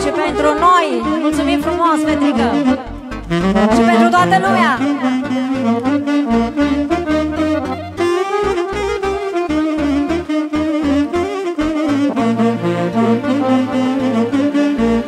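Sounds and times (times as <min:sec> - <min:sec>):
saxophone ornamented melody: 0:00.0 - 0:15.0
pulsing bass beat: 0:00.4 - 0:10.2.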